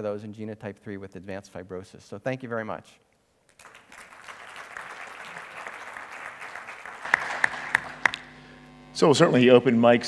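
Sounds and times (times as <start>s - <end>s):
audience applauding: 3.5s - 8.3s.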